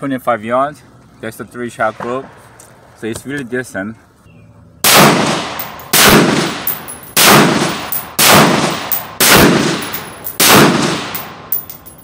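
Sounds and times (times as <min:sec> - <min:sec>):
loud gunshots with echo: 0:04.8 - 0:11.5.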